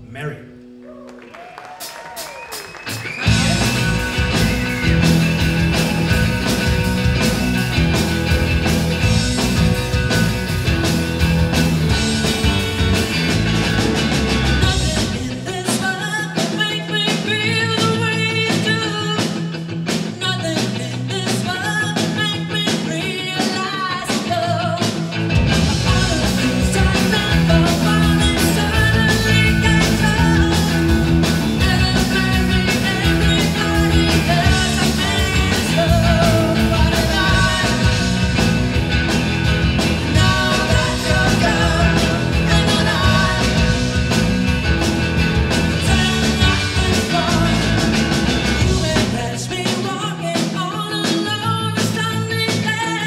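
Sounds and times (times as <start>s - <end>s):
drums: 0.0s - 53.0s
electric guitar: 0.0s - 53.0s
woman singing lead: 14.6s - 25.1s, 25.8s - 38.3s, 40.0s - 44.0s, 45.8s - 48.0s, 48.6s - 53.0s.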